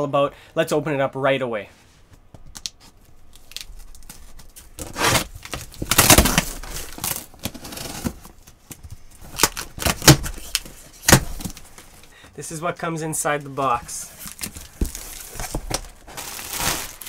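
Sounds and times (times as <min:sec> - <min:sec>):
packing tape ripping: 0:03.3 - 0:08.2, 0:09.3 - 0:11.6, 0:14.3 - 0:17.0
cardboard rustling and scraping: 0:04.0 - 0:12.0, 0:13.5 - 0:17.0.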